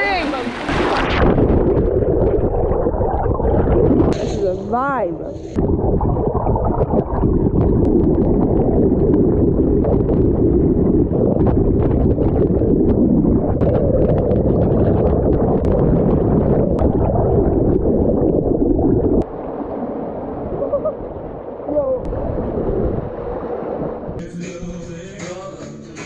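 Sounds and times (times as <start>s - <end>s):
water rushing underwater: 0.0s - 24.2s
crackling bubble clicks: 0.9s - 19.3s.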